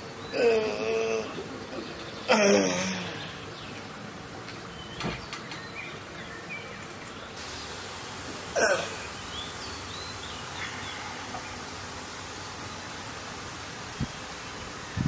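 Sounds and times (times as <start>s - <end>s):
background hiss: 0.0s - 15.0s
person coughing or hiccuping: 2.3s - 3.2s, 8.5s - 9.1s.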